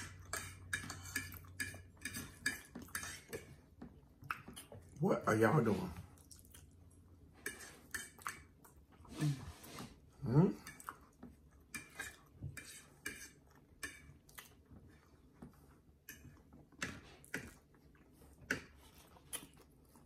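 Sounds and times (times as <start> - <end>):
cutlery clinking on plates: 0.0 - 3.6, 11.7 - 14.2.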